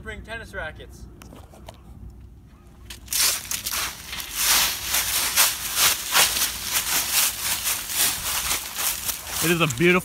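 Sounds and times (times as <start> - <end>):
footsteps crunching dry leaves: 2.9 - 10.0.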